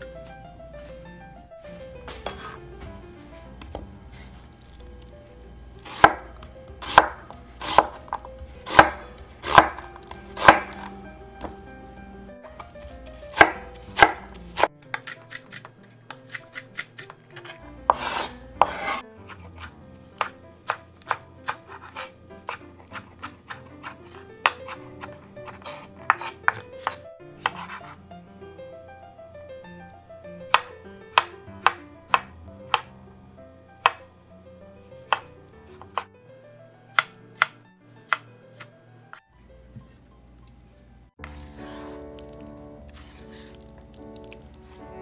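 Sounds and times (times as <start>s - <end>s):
knife chopping on cutting board: 2.2s - 2.6s, 5.8s - 11.6s, 12.6s - 28.0s, 30.5s - 32.9s, 33.8s - 34.0s, 35.0s - 36.1s, 37.0s - 38.7s.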